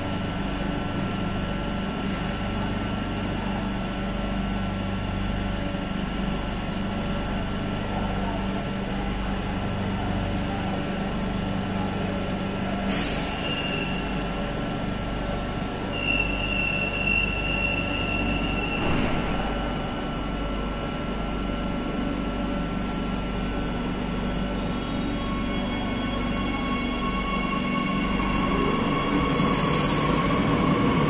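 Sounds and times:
train electrical hum: 0.0s - 31.0s
train doors shutting with hiss: 12.9s - 14.1s, 16.2s - 19.7s, 29.2s - 30.4s.

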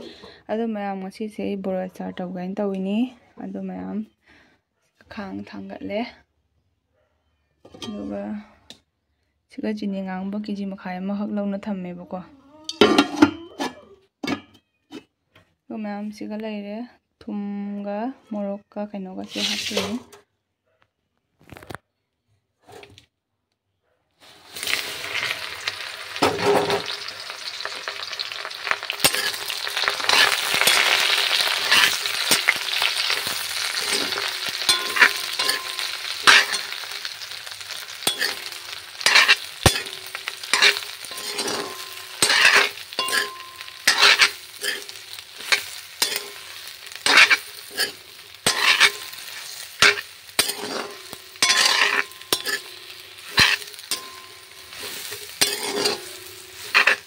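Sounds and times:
metal spatula scraping pan: 19.2s - 20.2s, 24.2s - 57.0s
food sizzling in hot oil: 19.3s - 20.0s, 24.2s - 57.0s.

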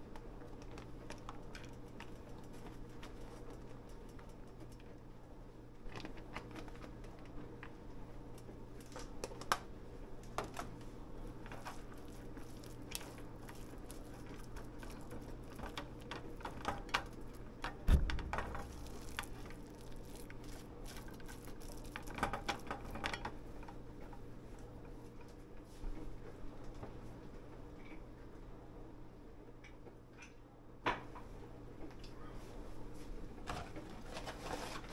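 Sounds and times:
spatula thump: 17.9s - 19.6s.

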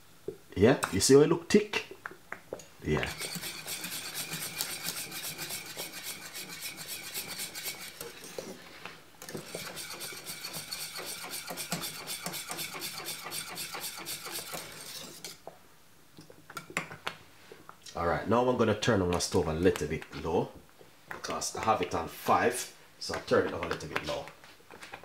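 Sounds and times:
whisk scraping and clinking in pot: 3.1s - 15.4s.

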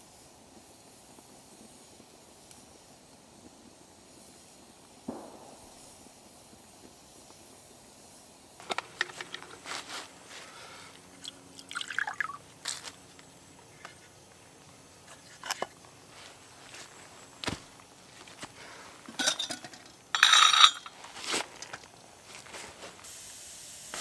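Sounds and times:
water pouring into a cup: 11.1s - 12.5s
water gurgle: 11.2s - 12.4s.

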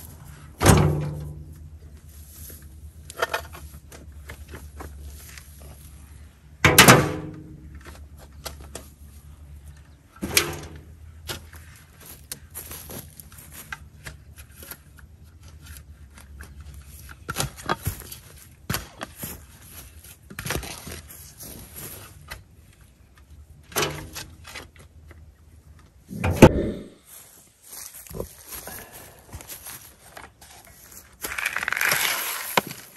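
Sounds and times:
shovel digging into soil: 31.2s - 32.9s.

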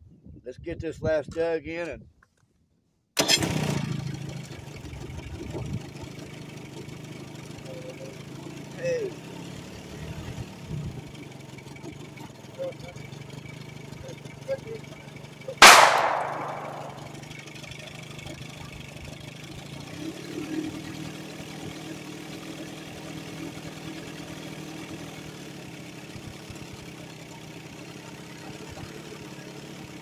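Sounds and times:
outboard motor idling: 3.6s - 9.8s, 10.6s - 15.6s, 17.0s - 30.0s.

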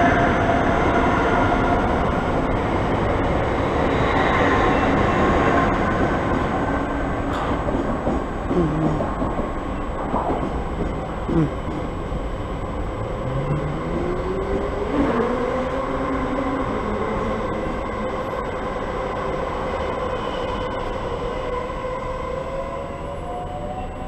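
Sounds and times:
electric train rumbling: 0.0s - 24.0s
rising motor whine: 12.8s - 15.6s.

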